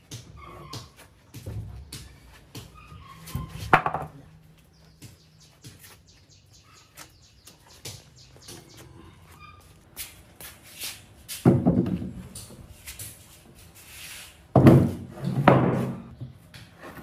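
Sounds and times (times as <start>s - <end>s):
birds chirping: 0.2s - 10.0s
scrap wood knocking and scraping: 2.3s - 4.2s, 13.8s - 17.0s.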